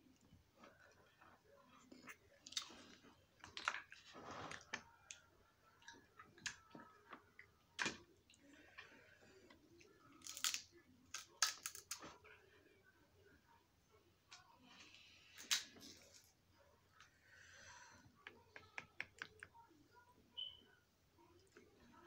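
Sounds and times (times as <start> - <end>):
crab shells cracking: 10.2 - 12.0.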